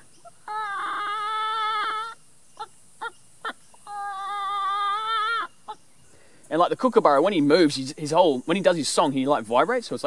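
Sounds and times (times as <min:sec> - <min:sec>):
man imitating chicken calls: 0:00.0 - 0:05.8.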